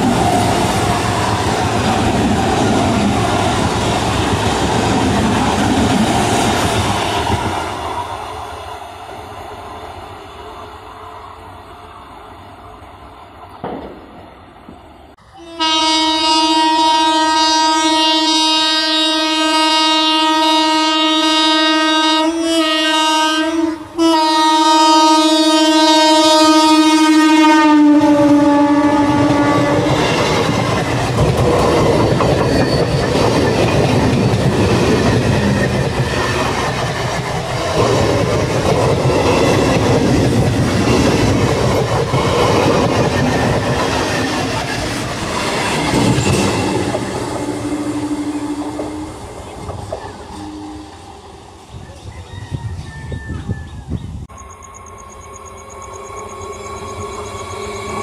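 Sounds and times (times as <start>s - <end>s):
train horn blast: 15.4s - 30.0s, 46.2s - 51.1s.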